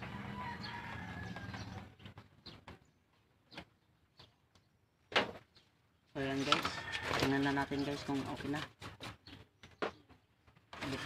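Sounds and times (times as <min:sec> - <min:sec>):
brush scratching across board: 0:07.7 - 0:09.2.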